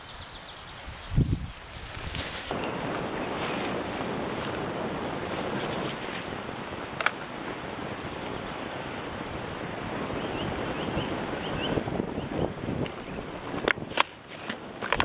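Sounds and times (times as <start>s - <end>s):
wind on microphone: 0.0s - 15.0s
brushing through wet branches: 0.7s - 6.9s.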